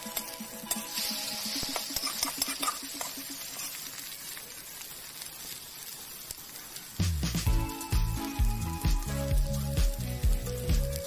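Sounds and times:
egg frying in oil: 0:00.0 - 0:11.0
music with deep bass line: 0:07.0 - 0:11.0.

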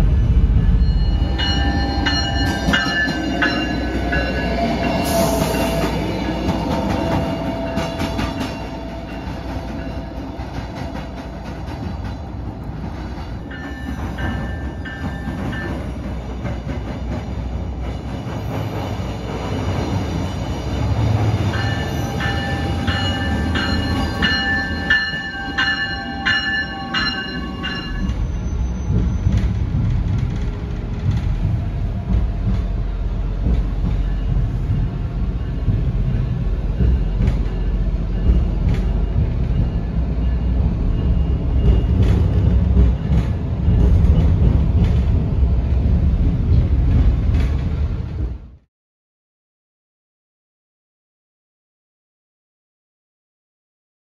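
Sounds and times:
railcar engine and wheels rumbling: 0:00.0 - 0:48.7
high ringing tones: 0:00.5 - 0:10.3, 0:20.3 - 0:28.8.

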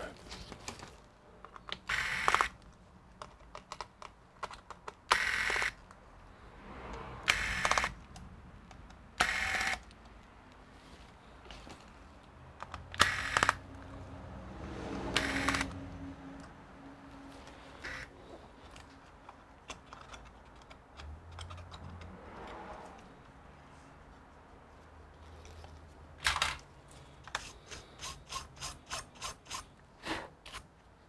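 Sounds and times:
electric screwdriver whirring: 0:01.9 - 0:02.6, 0:05.1 - 0:05.8, 0:07.3 - 0:08.0, 0:09.2 - 0:09.8, 0:13.0 - 0:13.6, 0:15.1 - 0:15.8, 0:17.8 - 0:18.1
light clicks of tool and screws: 0:18.6 - 0:23.4, 0:25.1 - 0:29.8.

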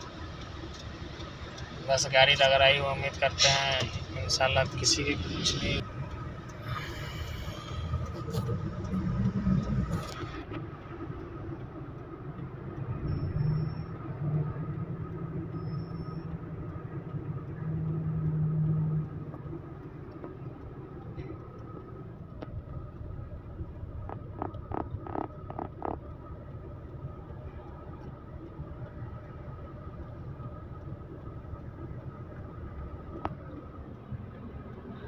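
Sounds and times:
truck diesel engine rumbling: 0:00.0 - 0:35.0
sharp clicks: 0:23.9 - 0:26.1.

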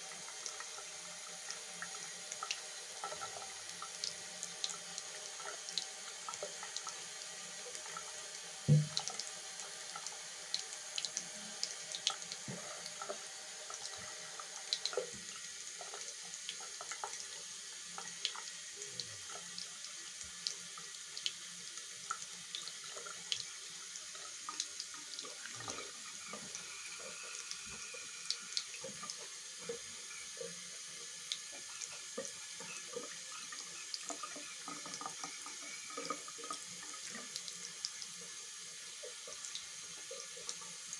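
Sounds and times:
tap water running into sink: 0:00.0 - 0:40.9
low thump: 0:08.7 - 0:08.9.

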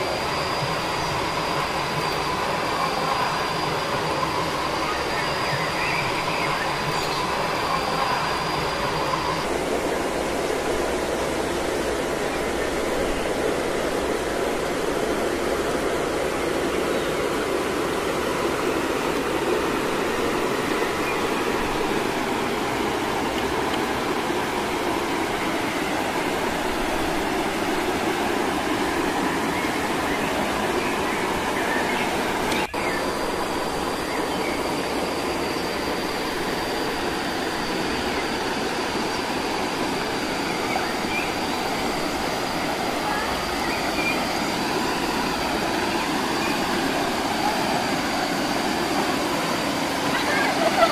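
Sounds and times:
faint high steady tone: 0:00.0 - 0:50.9
rushing water of waterfall: 0:00.0 - 0:50.9.

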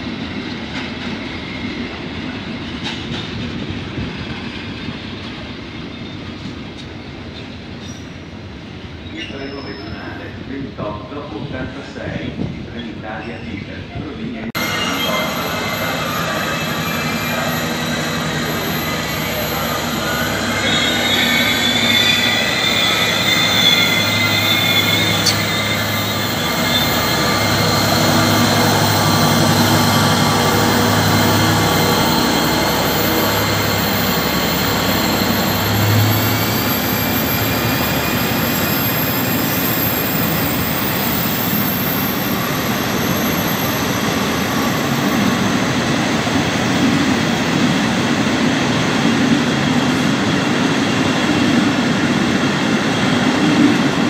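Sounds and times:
train wagons rumbling by: 0:00.0 - 0:54.0
diesel locomotive engine hum: 0:13.8 - 0:54.0
high-pitched wheel squeal: 0:14.6 - 0:45.4.

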